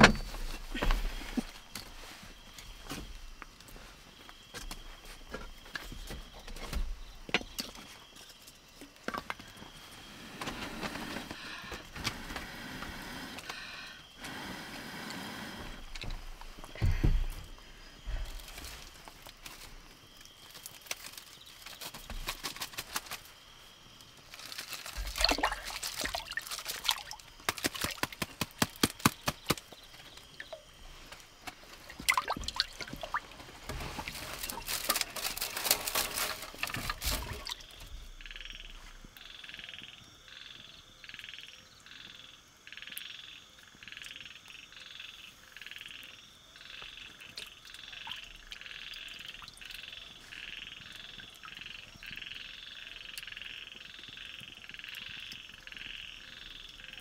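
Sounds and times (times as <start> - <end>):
frog calling: 37.2 - 57.0.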